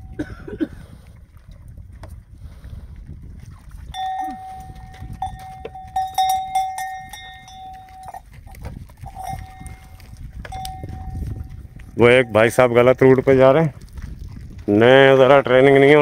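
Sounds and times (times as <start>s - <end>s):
cowbell clanking: 3.9s - 13.2s.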